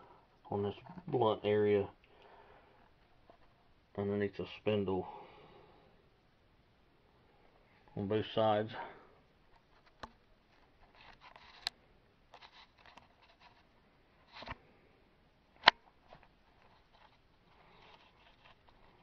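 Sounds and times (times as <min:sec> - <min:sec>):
rustling: 0:09.5 - 0:14.8, 0:15.7 - 0:19.0.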